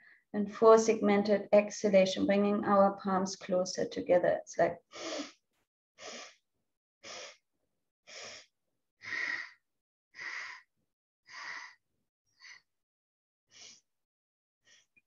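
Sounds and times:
woman's sharp nasal breaths: 4.9s - 5.4s, 6.0s - 6.4s, 7.0s - 7.4s, 8.1s - 9.6s, 10.2s - 10.7s, 11.3s - 11.8s, 13.5s - 13.9s.

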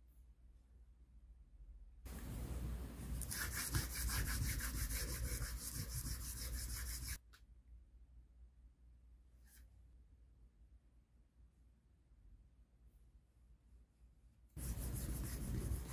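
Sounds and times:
pad rubbing on leather: 3.3s - 7.2s, 14.6s - 15.9s.

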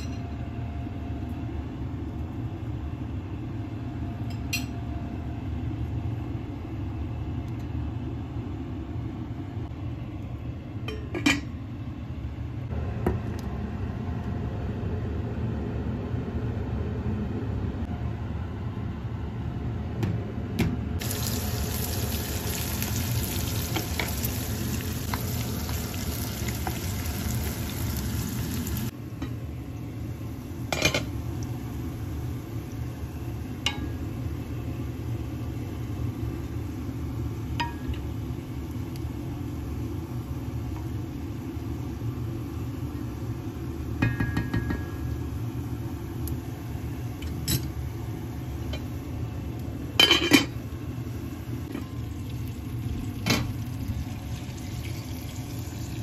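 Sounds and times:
onions sizzling in oil: 21.0s - 44.0s, 50.6s - 56.0s
spoon knocking against pot: 44.0s - 45.0s.

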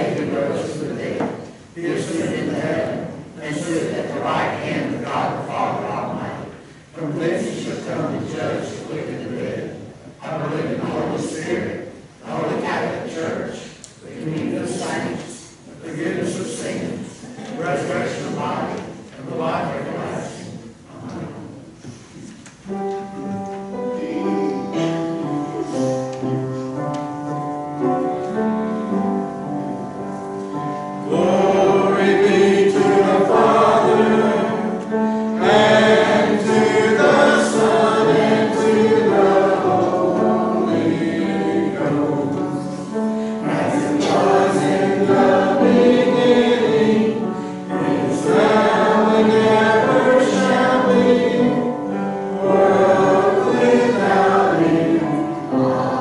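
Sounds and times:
congregation singing a hymn: 0.0s - 56.0s
musical accompaniment: 21.8s - 56.0s.

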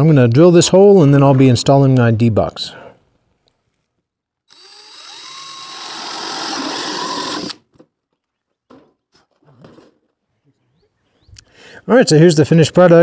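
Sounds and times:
drill cutting plastic: 4.5s - 7.7s.

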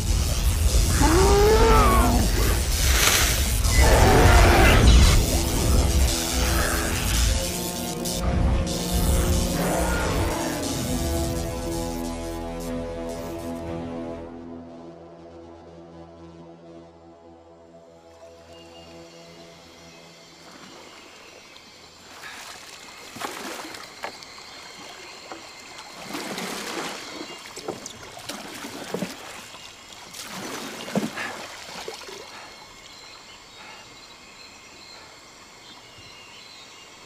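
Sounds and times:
faint river rush: 19.6s - 37.0s
river water splashing: 20.0s - 33.7s.

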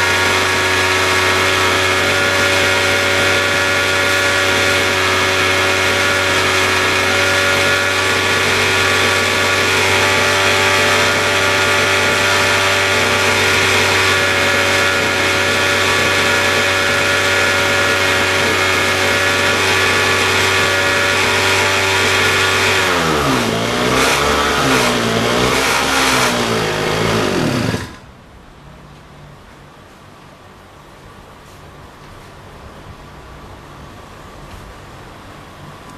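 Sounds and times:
lawn mower engine running: 0.0s - 28.1s.

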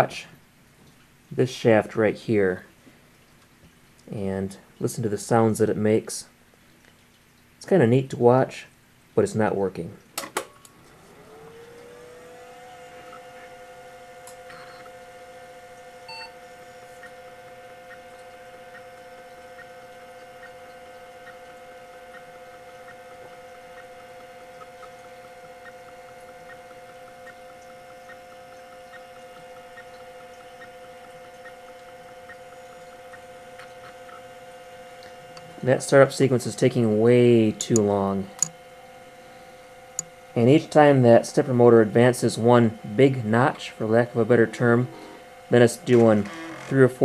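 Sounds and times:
hard drive spin-up whine: 10.7s - 47.0s
stepper motor ticking: 10.7s - 47.0s.

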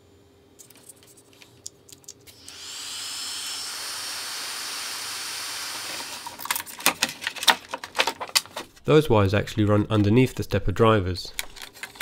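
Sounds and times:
wires clicking and rattling: 0.6s - 2.4s, 6.2s - 8.8s, 11.3s - 12.0s
small electric blower whining: 2.3s - 6.5s.

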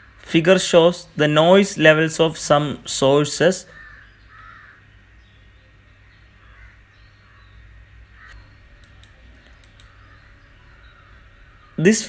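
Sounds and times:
distant bird calls: 0.0s - 12.0s
low steady hum: 0.0s - 12.0s
light clicks: 8.3s - 10.0s.

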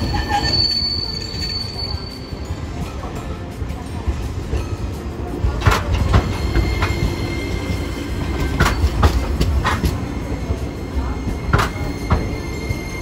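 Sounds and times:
tram rumbling: 0.0s - 13.0s
wheels clacking over rail joints: 2.8s - 10.7s.

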